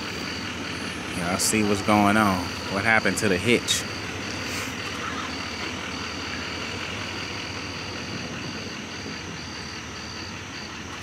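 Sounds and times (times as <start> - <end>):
truck engine low rumble: 0.0 - 11.0.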